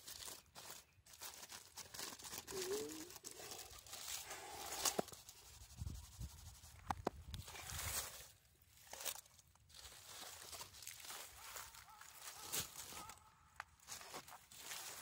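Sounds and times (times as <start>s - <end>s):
aluminium foil crinkling and tearing: 0.0s - 5.7s, 7.4s - 13.2s.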